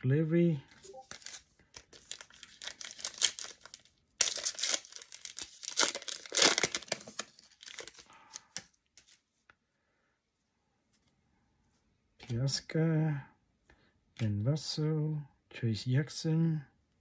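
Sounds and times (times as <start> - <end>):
foil wrapper tearing and crinkling: 1.0 - 8.6.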